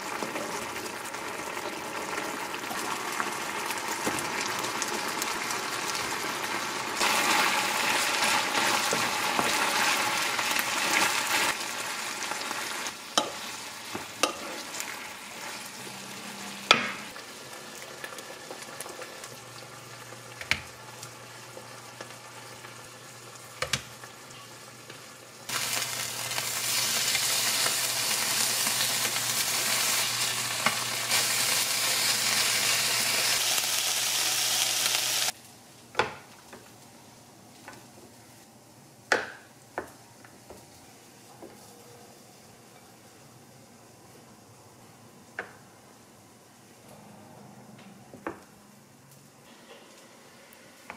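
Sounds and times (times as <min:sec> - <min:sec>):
food sizzling in a pan: 0:00.0 - 0:35.4.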